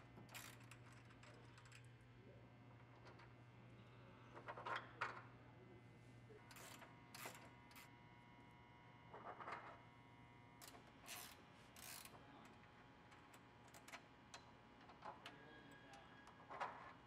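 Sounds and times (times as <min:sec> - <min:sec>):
wrench metal clicks and scrapes: 0:11.0 - 0:12.1.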